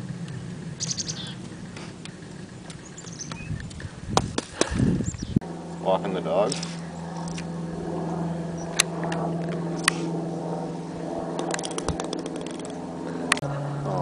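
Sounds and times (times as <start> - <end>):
steady low hum: 0.0 - 14.0
quick run of ticks: 11.4 - 13.4.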